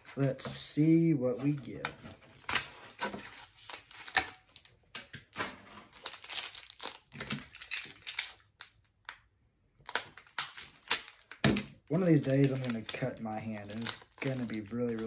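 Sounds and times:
foil pack crinkling: 5.3s - 8.9s, 9.8s - 15.0s.

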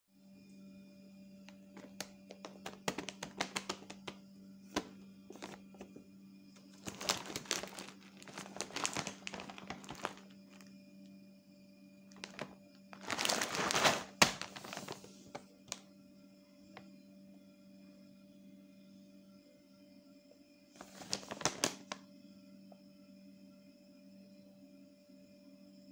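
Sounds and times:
plastic bag crinkling: 1.8s - 6.0s, 6.6s - 10.7s, 12.1s - 15.8s, 20.8s - 22.0s
soft background music: 6.7s - 10.7s.

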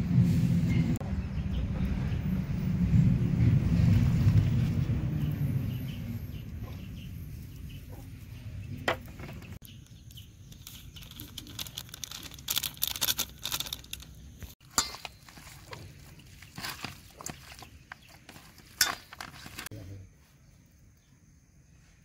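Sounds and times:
low rumble: 0.0s - 8.8s.

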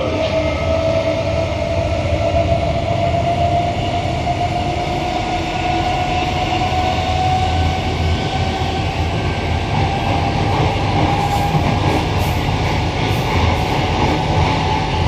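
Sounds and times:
train running rumble: 0.0s - 15.0s.

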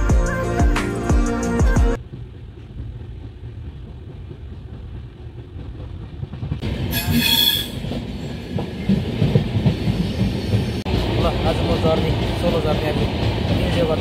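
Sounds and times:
train rumble inside coach: 1.5s - 14.0s
high-pitched wheel squeal: 6.9s - 7.8s.

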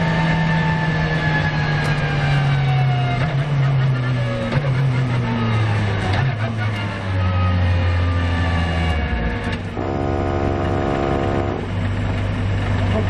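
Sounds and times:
car engine at low revs: 3.0s - 13.0s.

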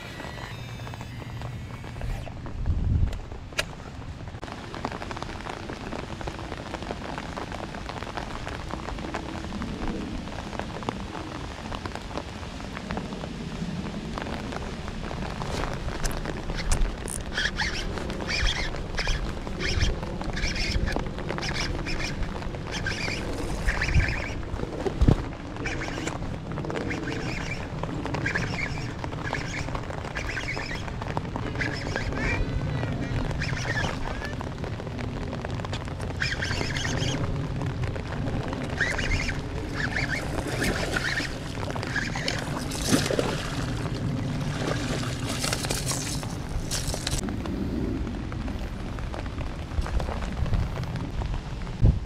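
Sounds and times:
fishing reel cranking: 0.0s - 2.3s
steady rain: 0.0s - 52.0s
wind on microphone: 0.0s - 52.0s
fish splashing: 38.7s - 47.2s.

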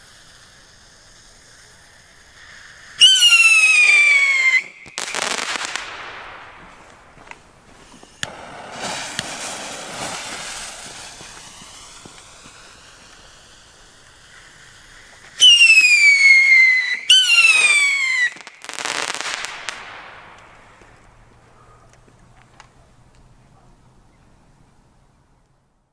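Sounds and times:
firework crackling: 0.0s - 23.3s
whistle rockets shrieking: 2.4s - 7.0s, 7.9s - 21.2s.

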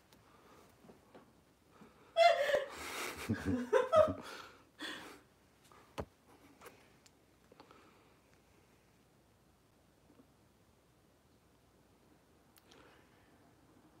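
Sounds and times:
man laughing: 2.2s - 4.5s.

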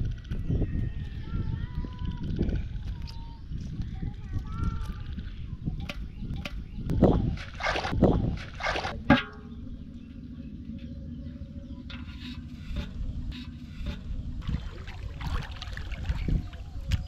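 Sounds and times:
low rumble with faint hum: 0.0s - 17.0s
water sloshing and splashing: 12.8s - 17.0s.

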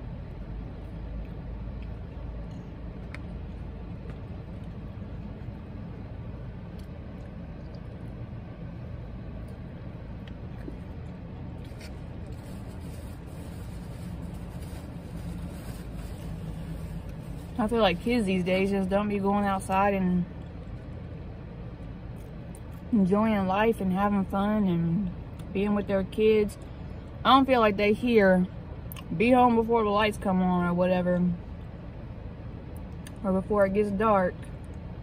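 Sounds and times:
car engine rumble inside cabin: 0.0s - 35.0s
faint clicks of food handling: 0.9s - 5.6s.

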